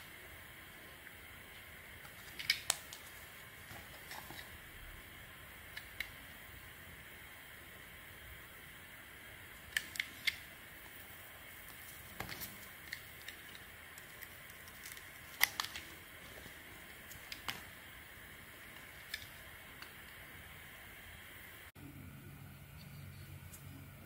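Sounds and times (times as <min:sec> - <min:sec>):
faint steady hiss: 0:00.0 - 0:24.0
blade carving dry soap crackles: 0:01.6 - 0:04.6, 0:09.6 - 0:18.0.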